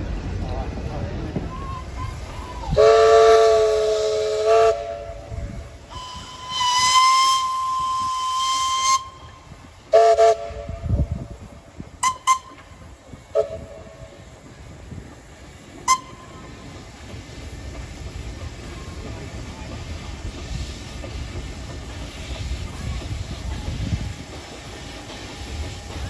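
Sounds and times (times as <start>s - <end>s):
higher single-note steam whistle: 1.5s - 11.1s, 12.0s - 14.2s, 15.8s - 16.5s.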